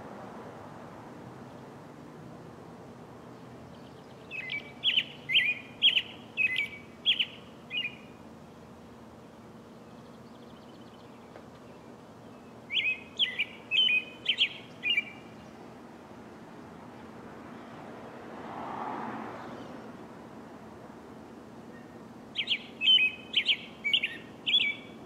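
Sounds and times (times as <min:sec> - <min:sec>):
robin singing: 0:03.2 - 0:15.9, 0:21.7 - 0:25.0.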